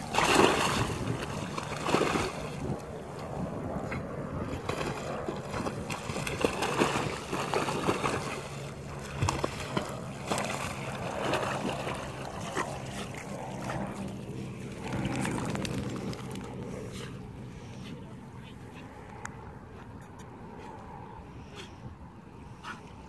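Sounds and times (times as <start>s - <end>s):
dog splashing through water: 0.0s - 2.9s, 4.4s - 16.8s
steady low hum: 0.0s - 23.0s.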